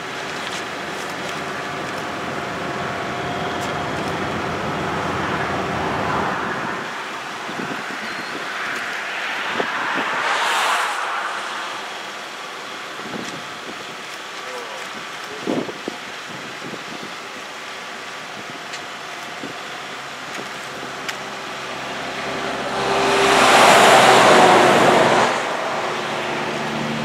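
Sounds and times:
road traffic: 0.0s - 27.0s.

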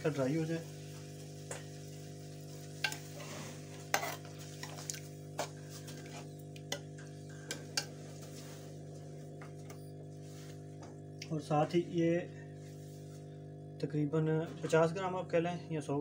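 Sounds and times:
steady low hum: 0.0s - 16.0s
metal spoon scraping a pan: 2.8s - 4.8s, 5.4s - 8.8s.

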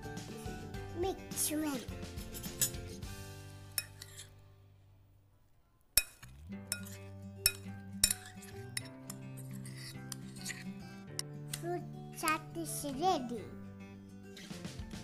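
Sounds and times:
background music: 0.0s - 5.1s, 6.0s - 15.0s
spoon clinking on ceramic bowl: 3.8s - 4.2s, 6.0s - 8.9s.

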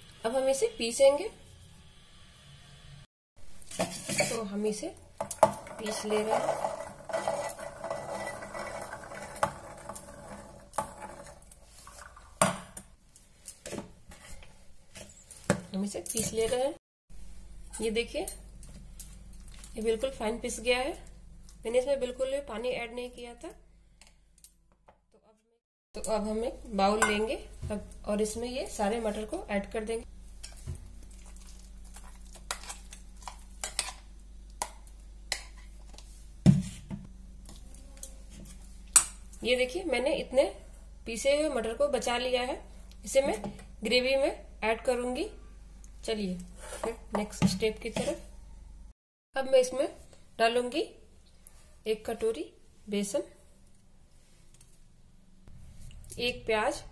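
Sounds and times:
peas rattling in a steel bowl: 5.7s - 10.3s.

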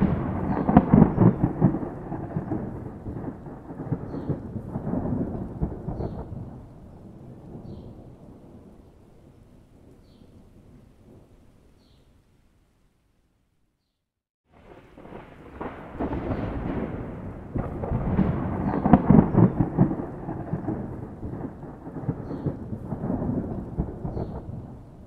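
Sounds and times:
sharp thunder cracks: 0.0s - 8.8s, 14.5s - 25.0s
thunder rumbling: 0.0s - 11.4s, 14.5s - 25.0s.

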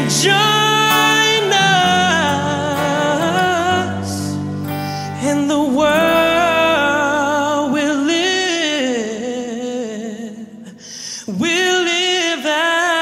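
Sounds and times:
singer holding wavering notes: 0.0s - 8.4s.

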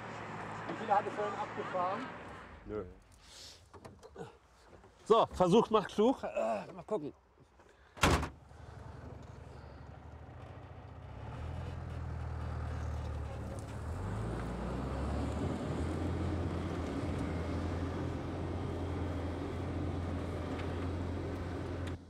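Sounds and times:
truck diesel engine under load: 8.4s - 22.0s.

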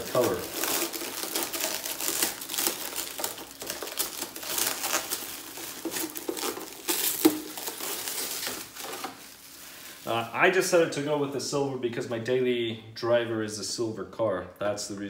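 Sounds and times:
plastic wrap crinkling: 0.0s - 10.8s.

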